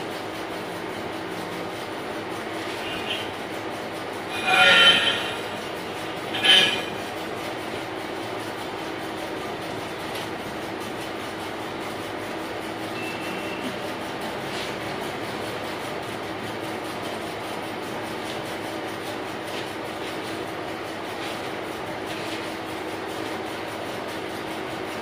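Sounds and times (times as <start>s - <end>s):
metal lathe humming: 1.6s - 10.0s
loud metallic screeches: 2.6s - 3.4s, 4.2s - 7.2s.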